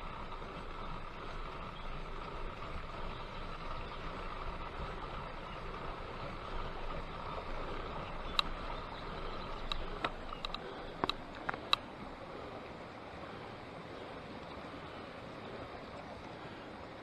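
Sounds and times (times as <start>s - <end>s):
bike clicks and ticks: 0.0s - 12.0s
steady rushing noise: 0.0s - 17.0s.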